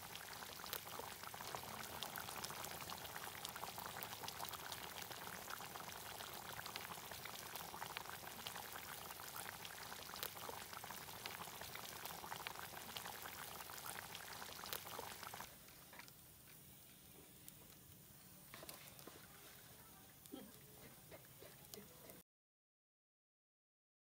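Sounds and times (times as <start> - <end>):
curry bubbling and popping: 0.0 - 16.5.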